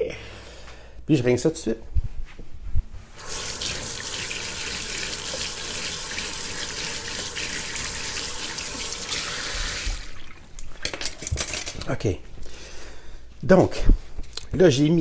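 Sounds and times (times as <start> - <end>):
faucet running into sink: 3.2 - 10.5
hands washing under water: 3.2 - 10.8.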